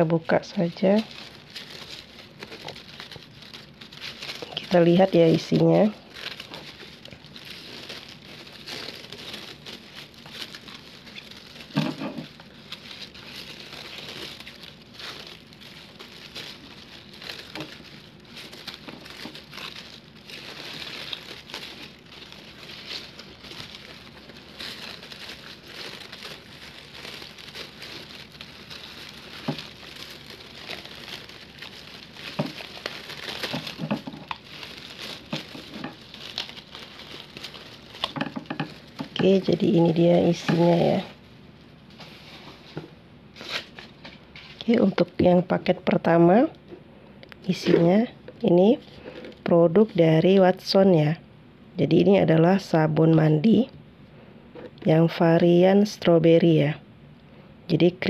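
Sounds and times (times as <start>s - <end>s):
paper crinkling and rustling: 0.0s - 45.1s.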